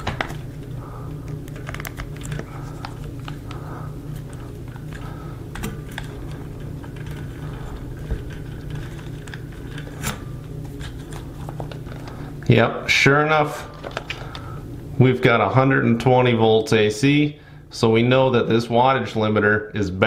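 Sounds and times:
test probes and connectors rattling: 0:00.0 - 0:12.5
steady low hum: 0:00.0 - 0:20.0.

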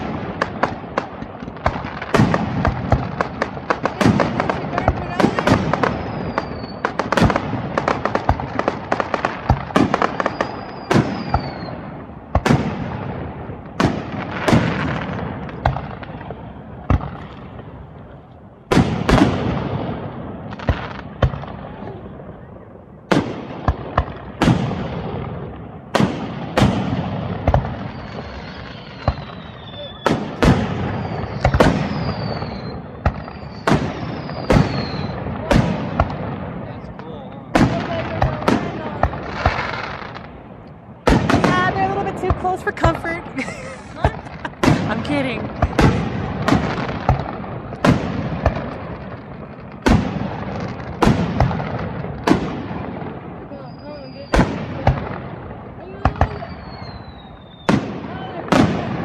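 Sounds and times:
firework shells bursting: 0:00.0 - 0:13.0, 0:25.9 - 0:36.4, 0:37.6 - 0:52.9
faint high whistle: 0:06.0 - 0:06.8, 0:10.2 - 0:11.8, 0:27.9 - 0:30.1, 0:31.0 - 0:35.2, 0:53.5 - 0:54.3, 0:56.4 - 0:57.7.

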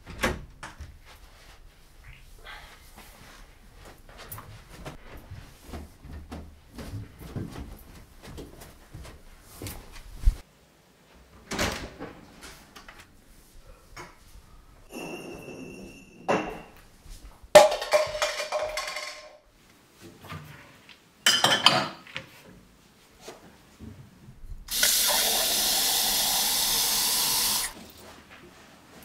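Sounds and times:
glassware knocking and clinking: 0:14.9 - 0:16.8, 0:17.6 - 0:19.4, 0:21.3 - 0:22.0
kitchen tap running: 0:24.7 - 0:27.8.

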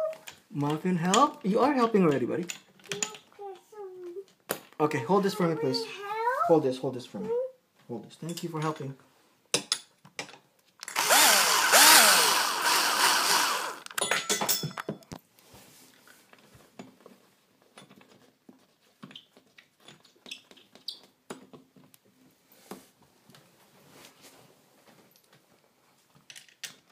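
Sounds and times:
cordless drill driving a screw: 0:10.9 - 0:13.9.

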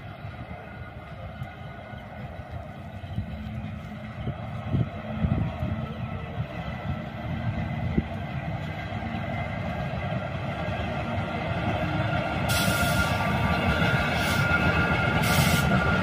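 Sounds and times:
electric locomotive passing: 0:00.0 - 0:16.0
loud hissing rush: 0:12.5 - 0:16.0.

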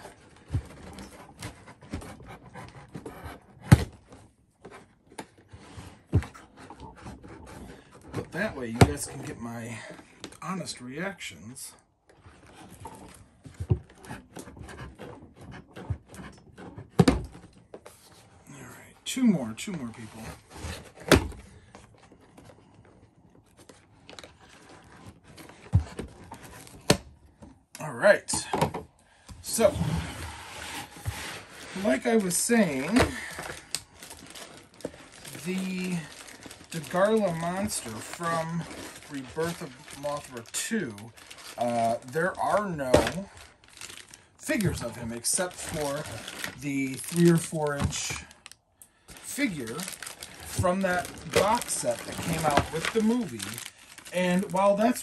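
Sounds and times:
knife scraping plastic: 0:29.5 - 0:42.0, 0:49.2 - 0:55.0.

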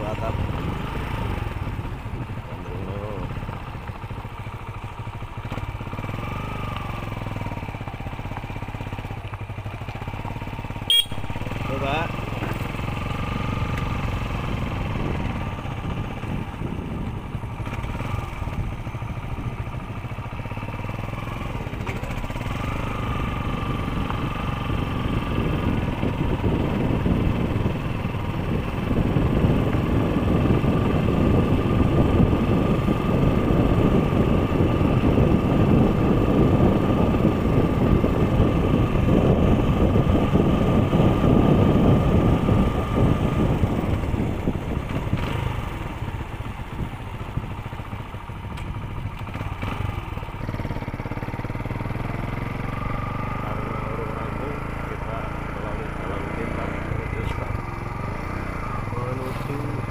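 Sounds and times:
motorcycle engine running: 0:00.0 - 0:59.9
rushing wind noise: 0:11.2 - 0:53.4.

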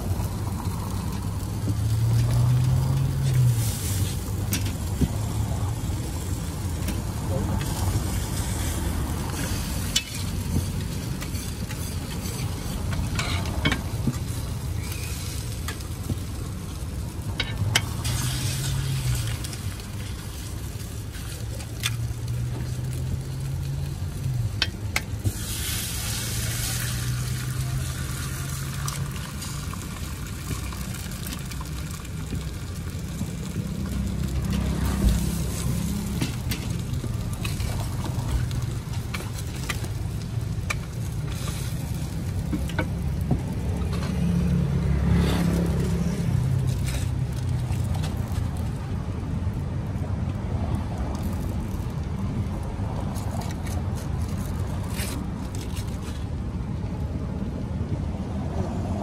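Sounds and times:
food sizzling on a griddle: 0:00.0 - 0:56.4
metal spatula scraping: 0:08.1 - 0:15.8.

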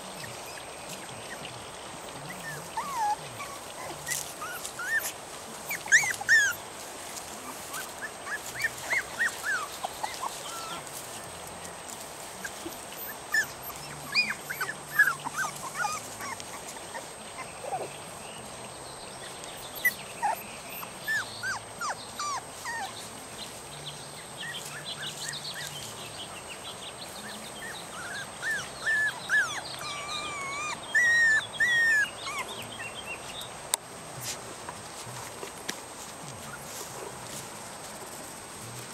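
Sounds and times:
puppies whining: 0:00.0 - 0:06.8, 0:07.5 - 0:11.4, 0:12.4 - 0:18.0, 0:19.5 - 0:23.2, 0:24.4 - 0:26.0, 0:27.2 - 0:33.2.

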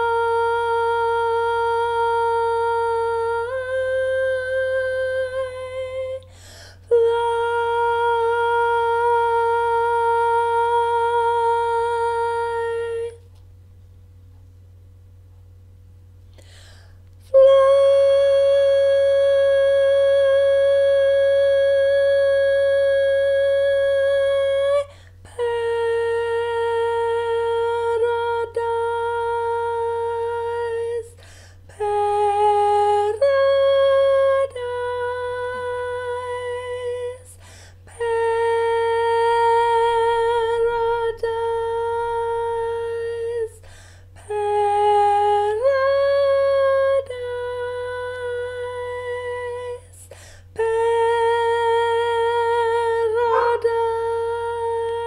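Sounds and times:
woman singing solo: 0:44.2 - 0:55.0.

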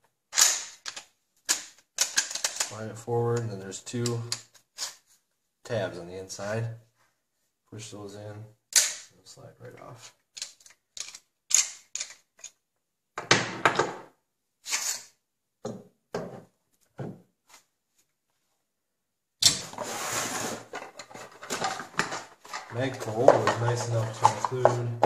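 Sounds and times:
handling scrape near microphone: 0:19.7 - 0:20.7.

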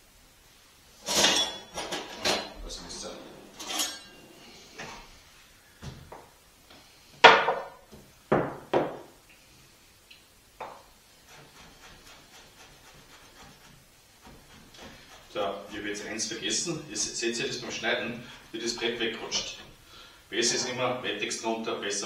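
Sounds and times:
knife chopping on a wooden board: 0:10.6 - 0:15.4.

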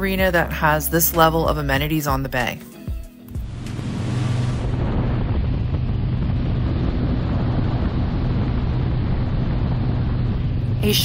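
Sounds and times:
wake rushing: 0:03.3 - 0:11.0
motorboat engine drone: 0:03.4 - 0:11.0
wind buffeting microphone: 0:03.4 - 0:11.0.

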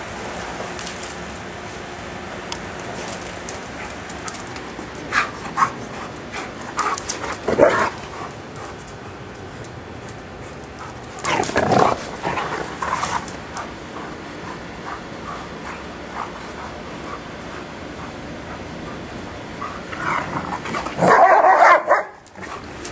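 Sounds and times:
dogs barking: 0:05.0 - 0:08.9, 0:10.4 - 0:22.7.

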